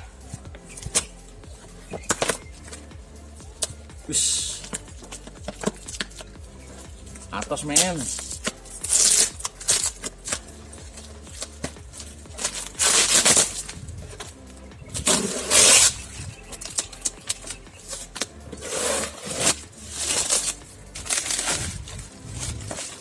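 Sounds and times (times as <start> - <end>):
plastic wrapping crinkling and ripping: 7.8 - 13.8, 19.0 - 23.0
scraping against cardboard: 15.0 - 23.0.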